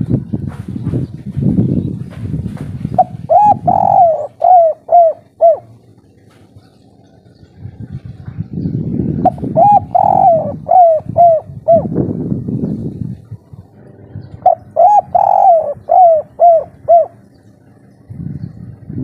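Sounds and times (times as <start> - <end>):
low muffled rumble: 0.0 - 19.0
dove cooing: 3.0 - 7.6, 9.2 - 12.1, 13.2 - 17.5.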